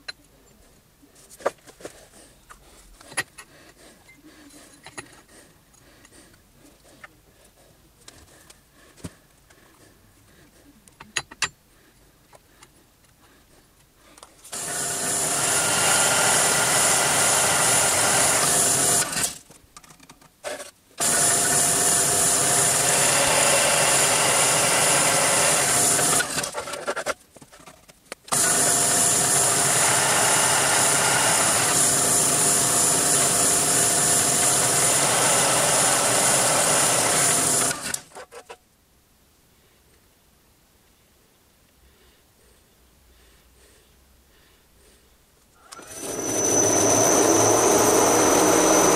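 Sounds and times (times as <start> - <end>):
pillar drill cutting metal: 14.5 - 19.4, 21.0 - 26.8, 28.3 - 38.2, 45.6 - 48.9.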